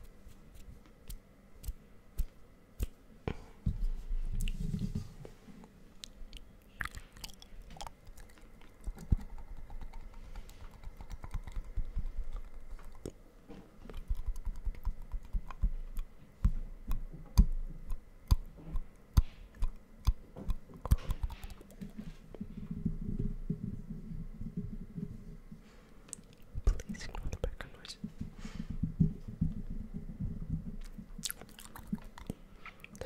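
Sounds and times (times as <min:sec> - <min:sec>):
wet tongue and lip clicks: 0:06.0 - 0:13.2, 0:13.9 - 0:22.0, 0:26.1 - 0:27.2, 0:30.8 - 0:33.0.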